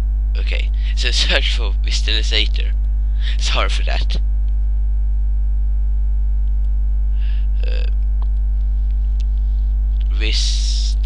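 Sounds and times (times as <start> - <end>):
electrical mains hum: 0.0 - 11.0
brief vocal sound: 7.2 - 7.9.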